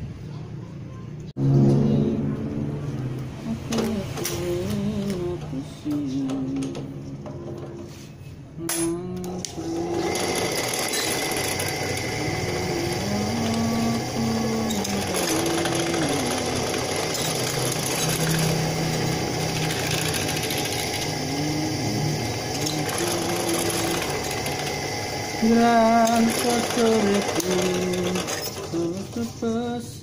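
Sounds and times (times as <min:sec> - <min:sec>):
drill press motor running: 0:09.1 - 0:29.6
drill bit boring holes: 0:09.2 - 0:29.4.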